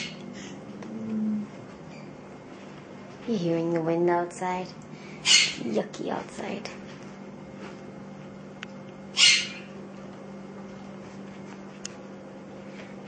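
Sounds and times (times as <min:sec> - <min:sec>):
parrot squawk: 0:00.0 - 0:00.5, 0:05.2 - 0:05.7, 0:09.2 - 0:09.7
steady low hum: 0:00.0 - 0:13.0.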